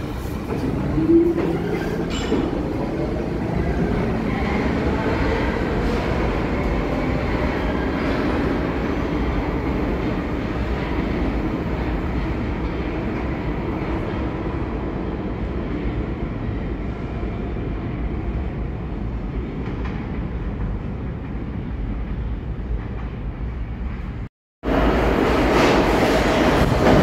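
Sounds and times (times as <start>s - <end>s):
subway train rumbling: 0.0s - 27.0s.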